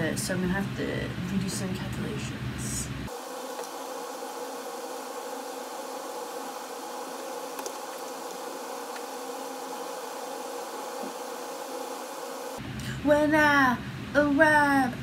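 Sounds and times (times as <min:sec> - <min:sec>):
buzzing hum: 0:02.8 - 0:12.7.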